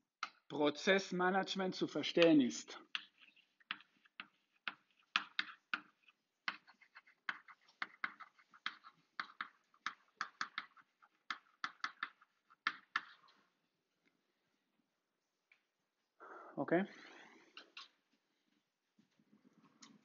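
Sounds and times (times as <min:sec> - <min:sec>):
chalk tapping and scratching on blackboard: 0:02.2 - 0:13.5.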